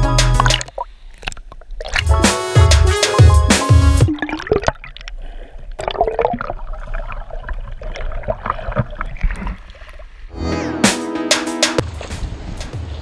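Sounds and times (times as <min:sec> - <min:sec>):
loud music with a beat: 0:00.0 - 0:00.6, 0:02.0 - 0:04.1, 0:10.4 - 0:11.9
water gurgling and sloshing: 0:00.4 - 0:02.2, 0:04.0 - 0:10.3.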